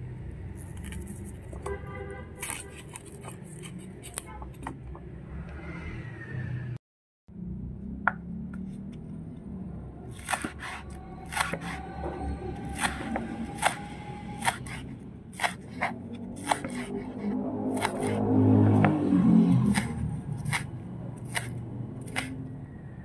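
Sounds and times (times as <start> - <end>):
utensils clicking and scraping: 2.4 - 4.8, 19.6 - 22.4.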